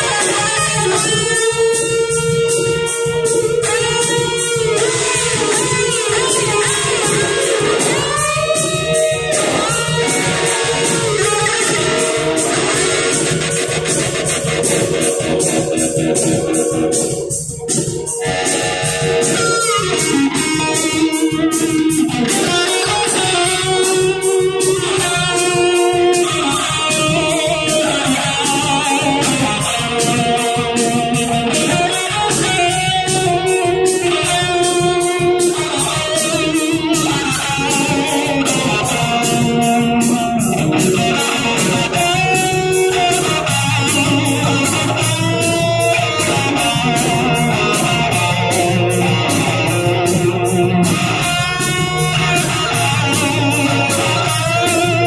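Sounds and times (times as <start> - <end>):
electric guitar: 0.0 - 55.0
rock band playing: 0.0 - 55.0.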